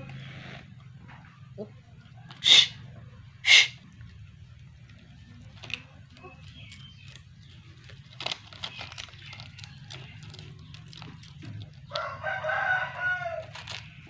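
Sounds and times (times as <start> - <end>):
rooster crowing: 2.2 - 2.9, 11.9 - 13.8.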